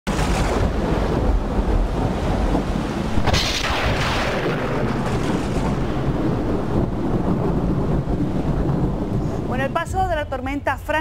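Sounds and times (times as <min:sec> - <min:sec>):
sharp thunderclap: 0:00.1 - 0:10.2
low thunder rumble: 0:00.1 - 0:11.0.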